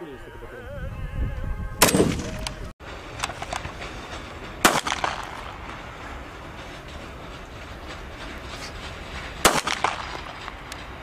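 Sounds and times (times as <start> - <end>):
pistol shot: 1.8 - 2.3, 4.6 - 5.5, 9.4 - 10.4
rifle shot with echo: 1.8 - 2.4, 4.6 - 5.6, 9.4 - 10.4.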